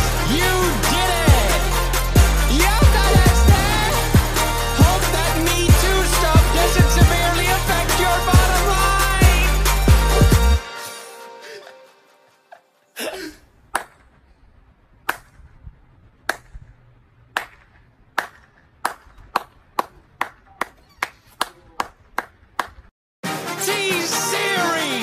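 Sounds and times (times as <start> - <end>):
music: 0.0 - 13.0, 23.2 - 25.0.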